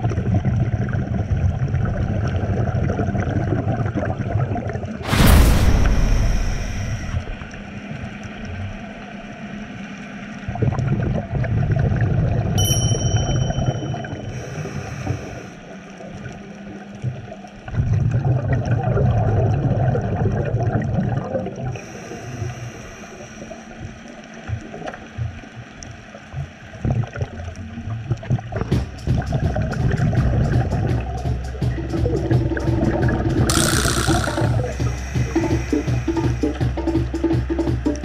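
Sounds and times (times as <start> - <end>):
regulator inhalation hiss: 5.7 - 7.5, 14.3 - 15.7, 21.8 - 23.6, 33.5 - 36.8
high ding: 12.6 - 14.9
diver exhaling bubbles: 33.5 - 36.8.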